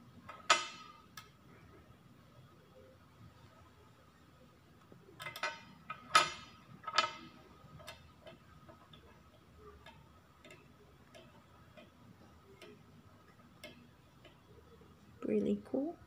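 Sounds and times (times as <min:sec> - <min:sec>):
faint regular ticking: 0:04.8 - 0:15.5.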